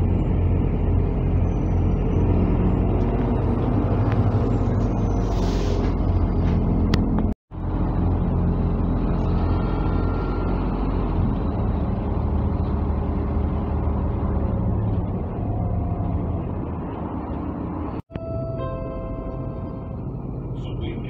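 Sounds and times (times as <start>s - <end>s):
bus engine drone: 0.0s - 21.0s
road noise: 0.0s - 21.0s
steady tone: 18.1s - 21.0s.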